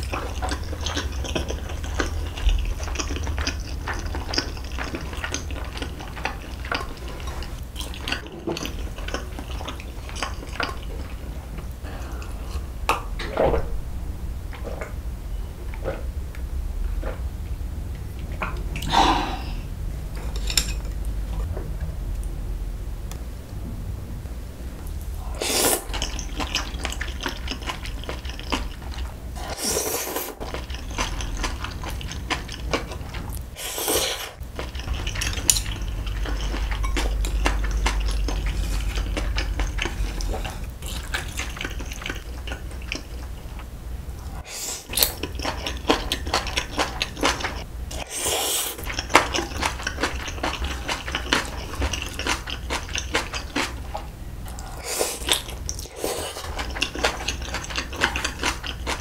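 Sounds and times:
chewing: 0:00.0 - 0:12.7, 0:25.2 - 0:43.7, 0:44.3 - 0:59.0
noodles slurped: 0:44.4 - 0:59.0.

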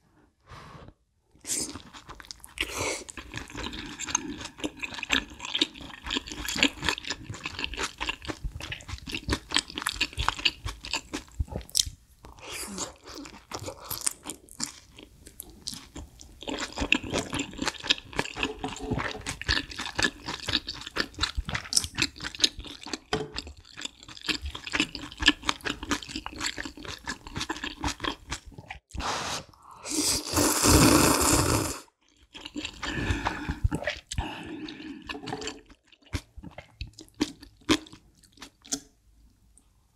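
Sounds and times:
wet chewing: 0:01.7 - 0:12.0, 0:13.0 - 0:28.8, 0:32.0 - 0:38.9
slurping broth: 0:28.9 - 0:35.7.

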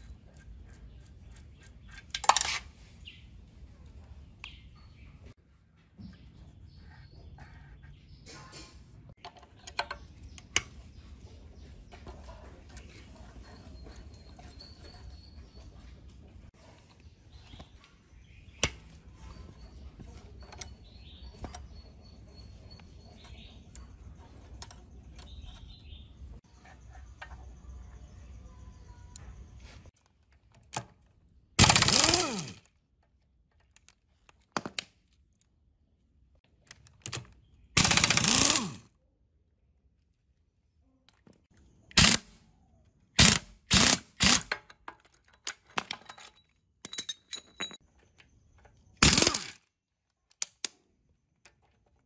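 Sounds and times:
handling of metal parts: 0:00.0 - 0:03.2, 0:44.4 - 0:49.6
ratchet wrench clicking: 0:31.6 - 0:32.6, 0:37.8 - 0:38.8, 0:43.2 - 0:44.5, 0:49.0 - 0:49.6.

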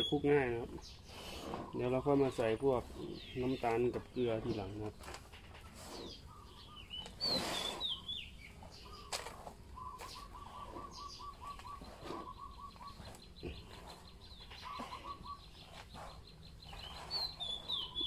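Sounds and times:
bird trill: 0:00.0 - 0:01.9, 0:06.0 - 0:18.0
small birds chirping: 0:00.0 - 0:18.0.

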